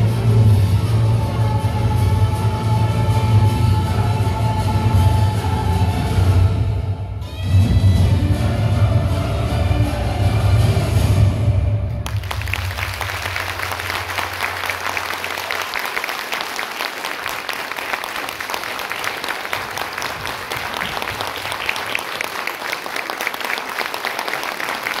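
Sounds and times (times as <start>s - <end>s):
crowd clapping: 12.0s - 25.0s.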